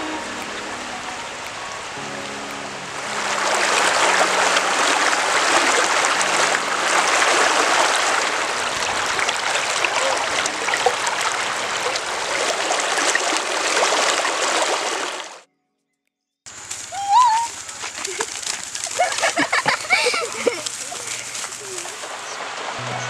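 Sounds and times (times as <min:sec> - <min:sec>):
river rushing over rocks: 0:00.0 - 0:15.4.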